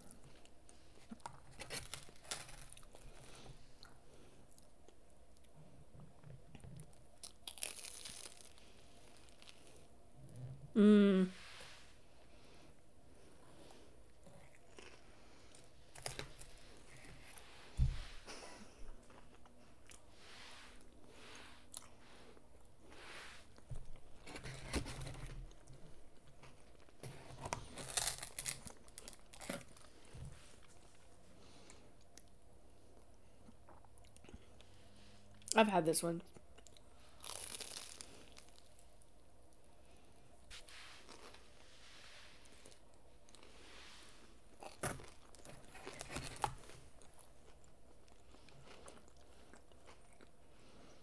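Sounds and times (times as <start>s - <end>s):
food crunching: 6.6s - 9.8s, 36.4s - 38.8s
crunchy chewing: 6.8s - 9.8s, 44.6s - 50.4s.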